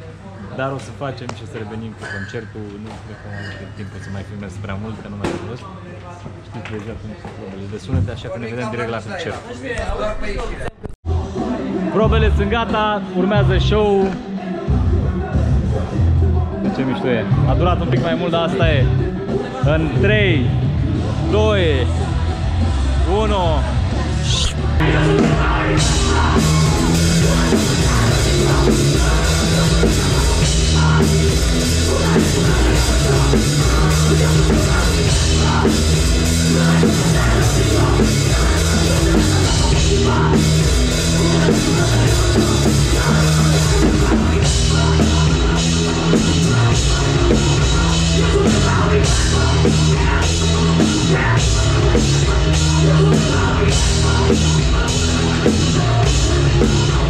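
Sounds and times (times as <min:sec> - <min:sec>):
bass guitar: 0:14.6 - 0:57.0
pounding drum kit: 0:17.5 - 0:57.0
distorted electric guitar: 0:21.8 - 0:57.0.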